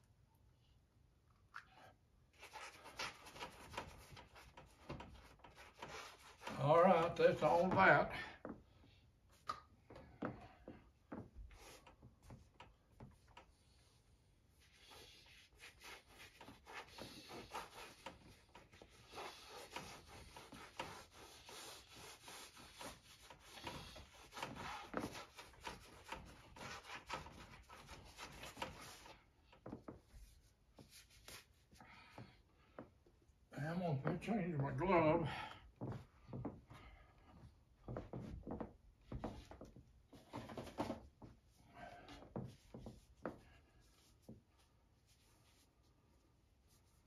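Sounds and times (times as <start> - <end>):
hand scrubbing paint on canvas: 2.3 - 8.1, 11.5 - 31.8, 42.2 - 47.0.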